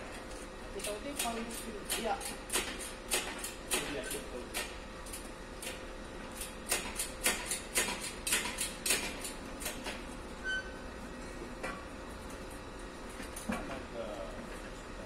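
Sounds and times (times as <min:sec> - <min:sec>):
high beep: 0:10.4 - 0:10.8.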